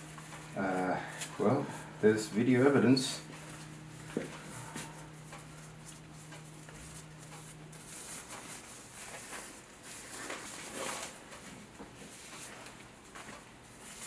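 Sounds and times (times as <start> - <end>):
steady low hum: 0.0 - 14.0
soft handling rustles and taps: 3.2 - 14.0.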